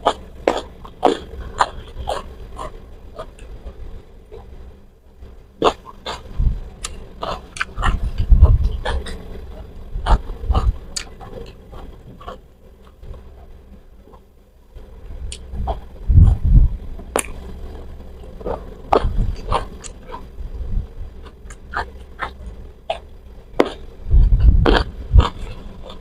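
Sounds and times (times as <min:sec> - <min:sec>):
mouth chewing and smacking: 0:00.0 - 0:04.6, 0:05.6 - 0:14.2, 0:15.3 - 0:16.6, 0:17.2 - 0:20.3, 0:21.2 - 0:26.0
low thumps: 0:22.6 - 0:25.6.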